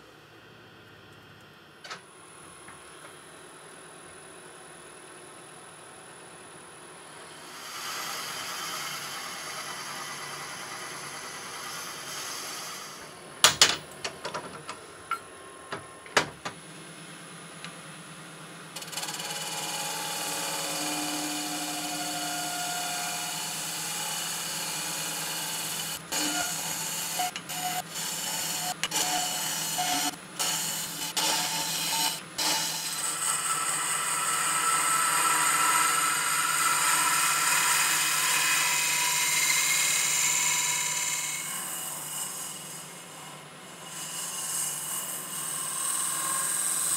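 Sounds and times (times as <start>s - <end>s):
wood lathe cutting hiss: 6.2s - 13.4s, 18.8s - 46.9s
sharp knocks: 15.7s - 16.6s.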